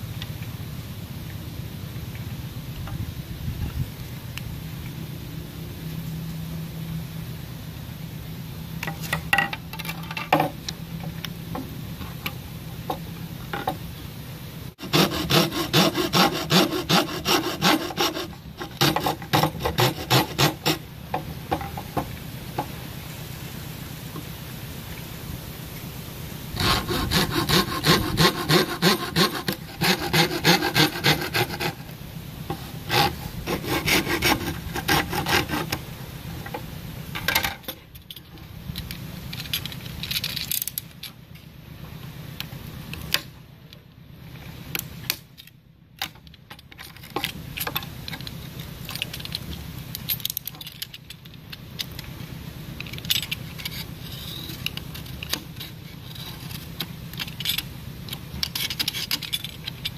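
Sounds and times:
hacksaw cutting bamboo: 14.8s - 22.0s, 26.6s - 35.8s
knife scraping bamboo: 14.8s - 22.0s, 26.6s - 36.6s, 52.8s - 59.9s.

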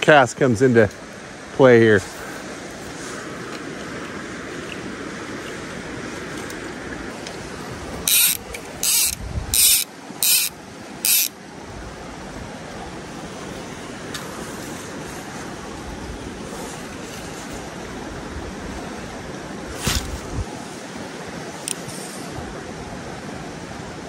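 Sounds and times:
creek rushing: 0.0s - 24.0s
fly reel ratchet buzzing: 8.0s - 11.4s.

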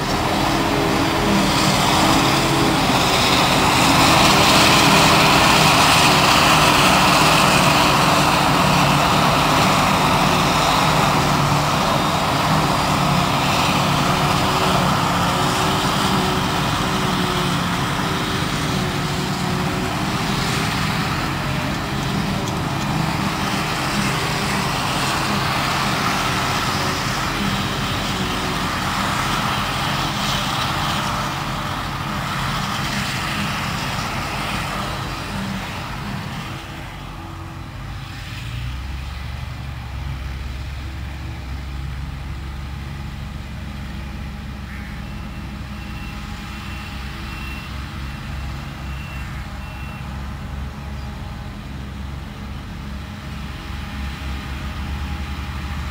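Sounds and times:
diesel engine running: 0.0s - 55.9s
forage harvester chopper whirring: 0.0s - 55.9s
tractor diesel engine: 0.0s - 55.9s
faint intermittent beeping: 44.7s - 50.2s.

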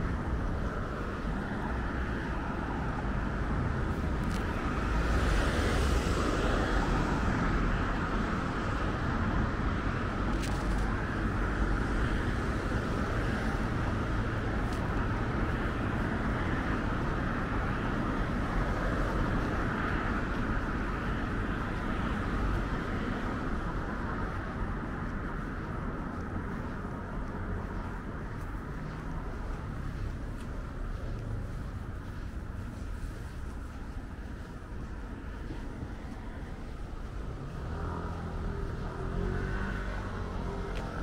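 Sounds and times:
city road traffic: 0.0s - 41.0s
vehicle passing loudly: 37.0s - 41.0s.

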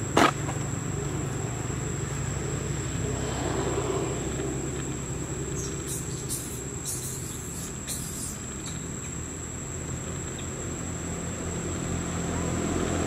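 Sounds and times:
high insect whine: 0.0s - 13.0s
low engine hum: 0.0s - 13.0s
short insect buzzes: 5.4s - 9.2s.

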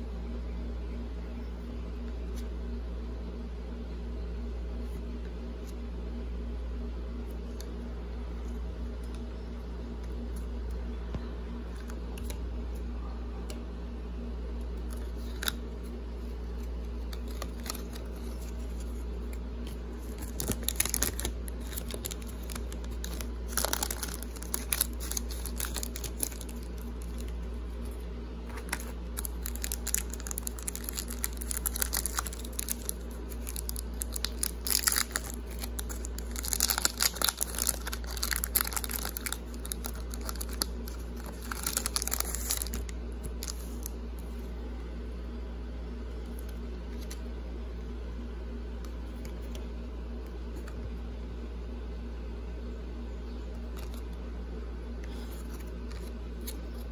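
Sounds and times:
steady low hum: 0.0s - 56.9s
foil wrapper tearing and crinkling: 17.1s - 19.0s, 20.0s - 43.9s.

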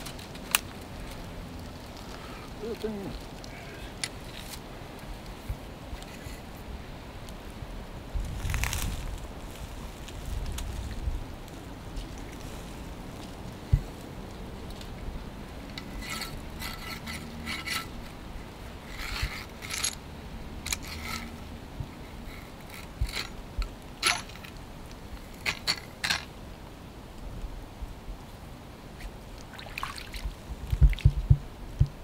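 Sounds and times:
small water splashes: 29.4s - 31.2s
low thumps: 30.8s - 32.0s.

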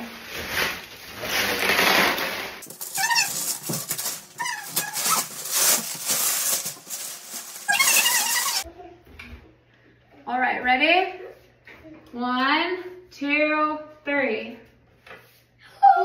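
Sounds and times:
bubble wrap rustling and crinkling: 0.0s - 8.7s
short high squeaks: 2.8s - 6.6s, 7.4s - 8.6s.

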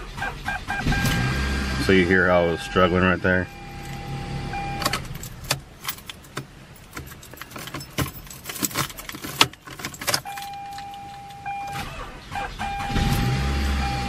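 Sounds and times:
car electronic warning tone: 0.5s - 5.0s, 10.2s - 14.0s
car keys jangling: 3.0s - 12.7s.

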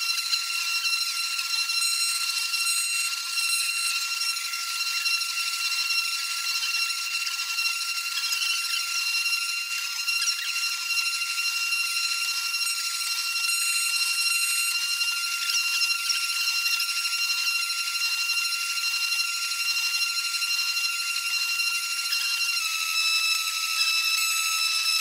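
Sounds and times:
mill spindle high-pitched whine: 0.0s - 25.0s
bit milling circuit board hiss: 21.2s - 25.0s.

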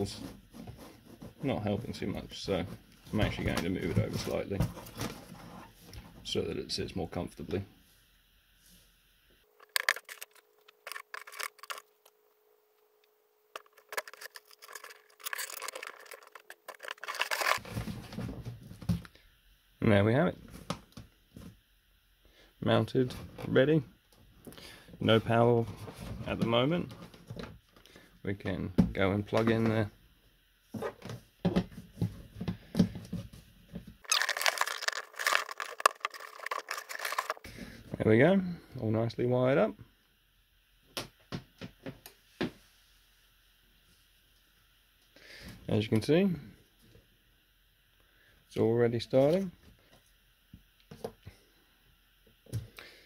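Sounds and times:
cable rustle: 9.6s - 12.0s, 13.6s - 18.1s, 34.0s - 37.4s.

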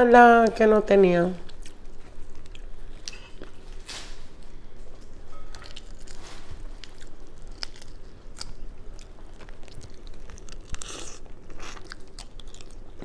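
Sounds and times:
chewing close up: 1.4s - 3.6s, 5.5s - 13.0s.

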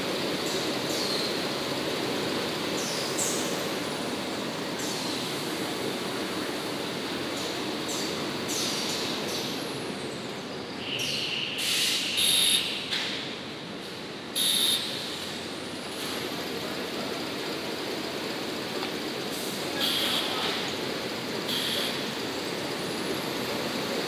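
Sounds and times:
high-pitched squealing hisses: 10.8s - 12.4s
factory machinery running: 11.6s - 24.0s.

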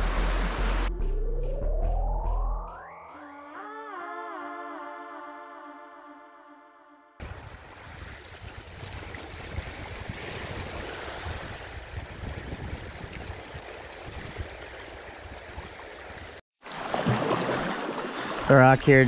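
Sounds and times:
small waves washing on shore: 7.2s - 18.9s
water around moving kayak: 7.2s - 19.0s.

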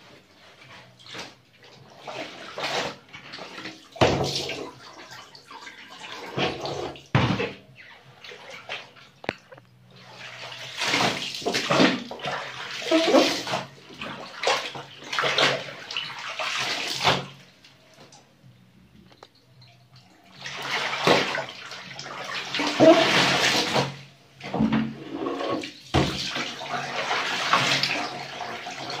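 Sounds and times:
water splashing in a washtub: 0.0s - 18.3s, 19.0s - 29.0s
water streaming from a basket: 10.0s - 17.2s, 20.3s - 24.0s.

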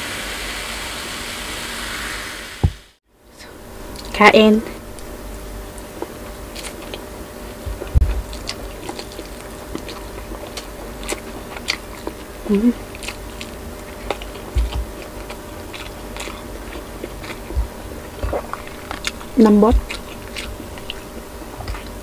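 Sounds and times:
low thumps: 2.6s - 2.9s, 7.6s - 8.4s, 17.5s - 20.0s
person chewing meat: 4.9s - 22.0s
person humming: 12.4s - 12.8s.

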